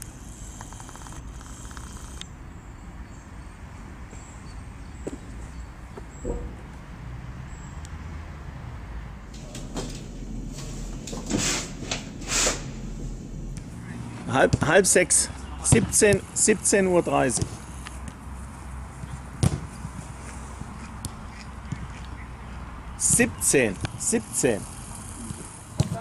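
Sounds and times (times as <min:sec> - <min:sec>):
low outdoor rumble: 0:09.0 - 0:26.0.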